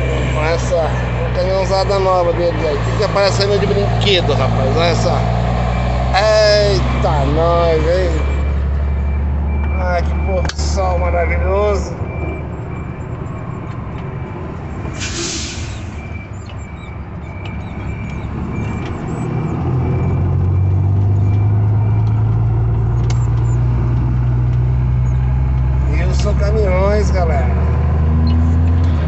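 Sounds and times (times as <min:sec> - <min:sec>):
truck diesel engine: 0:00.0 - 0:29.0
air brake hiss: 0:14.9 - 0:16.0.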